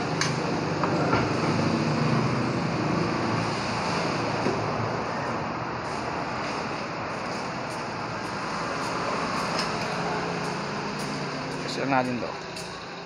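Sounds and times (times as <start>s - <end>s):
mechanical hum of shop: 0.0s - 13.0s.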